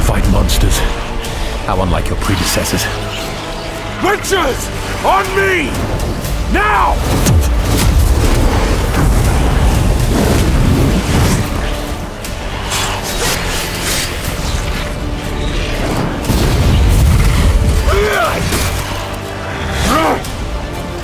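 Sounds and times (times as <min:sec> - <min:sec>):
dramatic orchestral score: 0:00.0 - 0:21.0
explosions and deep booms: 0:06.0 - 0:12.0, 0:15.8 - 0:18.7.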